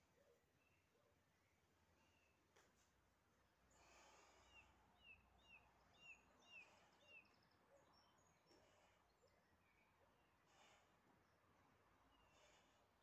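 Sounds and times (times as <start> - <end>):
faint bird chirps: 3.7 - 10.5.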